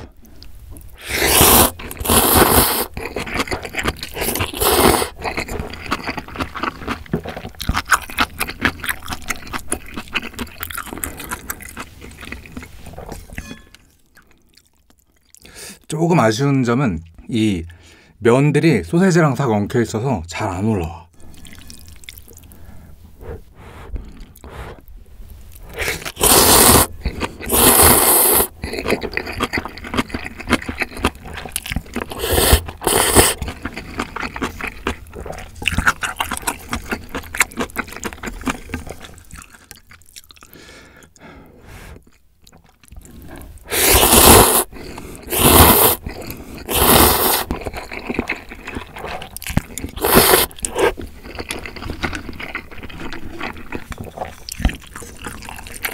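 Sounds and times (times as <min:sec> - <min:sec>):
noodles slurping: 0:01.0 - 0:12.7, 0:25.6 - 0:39.0, 0:43.0 - 0:55.9
wet chewing: 0:01.2 - 0:13.6, 0:21.2 - 0:24.9, 0:25.5 - 0:40.7, 0:42.0 - 0:55.9.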